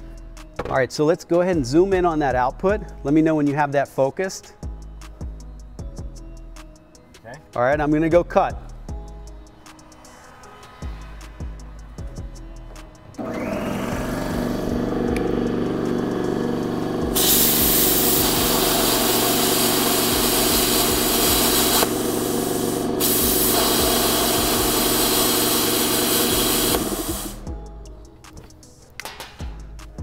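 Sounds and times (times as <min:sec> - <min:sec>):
machine hum: 0:13.1 - 0:27.5
plasma torch air hiss: 0:15.5 - 0:27.5.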